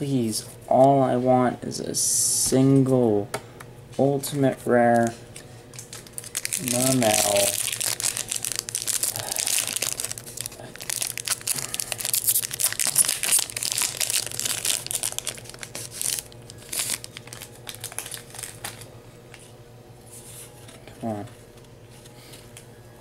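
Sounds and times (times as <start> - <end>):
foil wrapper crinkling and tearing: 5.7 - 18.9.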